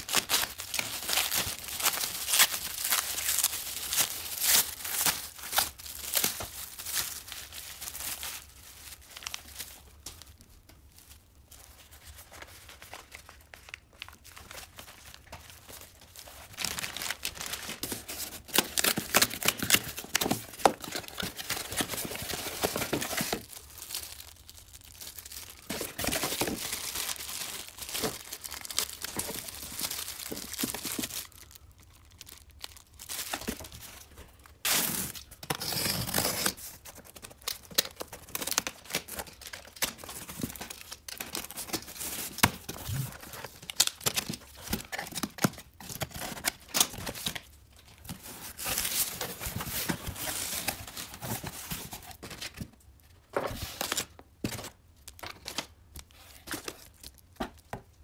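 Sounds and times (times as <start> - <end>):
plastic bag crinkling: 0.0 - 52.3.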